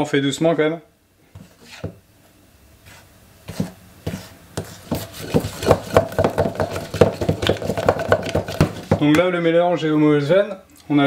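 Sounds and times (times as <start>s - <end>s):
spatula beating in metal bowl: 3.5s - 9.2s.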